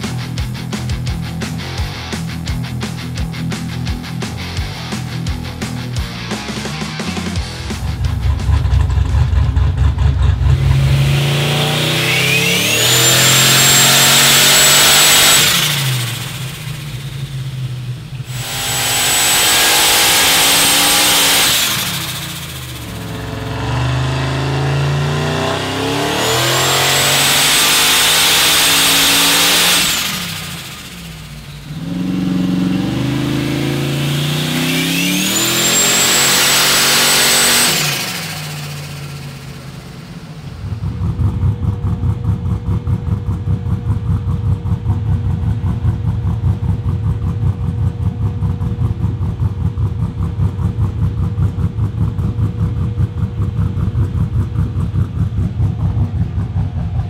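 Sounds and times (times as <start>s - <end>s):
engine loping idle: 0.0s - 26.0s, 37.9s - 57.0s
engine revving with whine: 0.0s - 57.0s.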